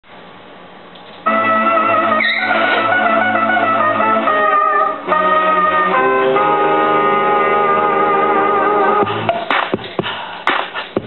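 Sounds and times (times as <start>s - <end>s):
sustained instrumental chords: 1.2s - 10.0s.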